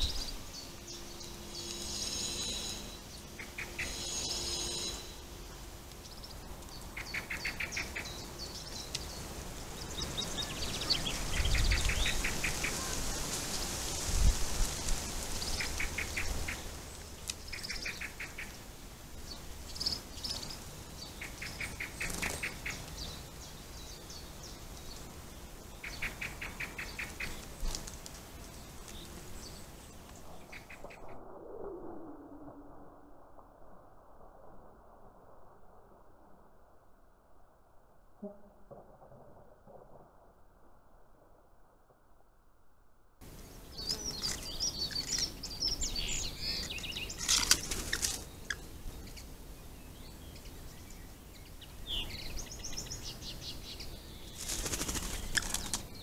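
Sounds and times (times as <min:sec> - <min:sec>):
birds singing and calling: 0:00.0 - 0:13.6, 0:15.3 - 0:18.6, 0:19.2 - 0:27.5, 0:43.5 - 0:56.0.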